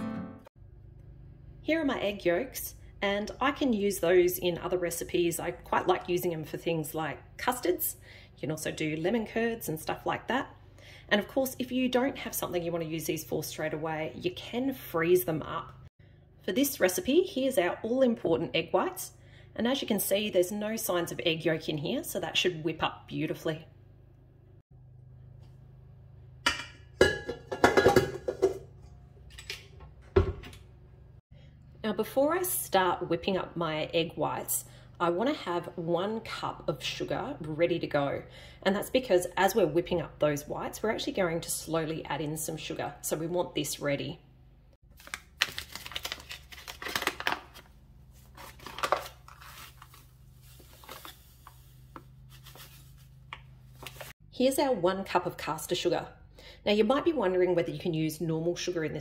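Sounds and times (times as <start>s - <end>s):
bowls and utensils clinking: 26.4s - 29.8s
sugar rustling and scraping: 45.0s - 54.2s.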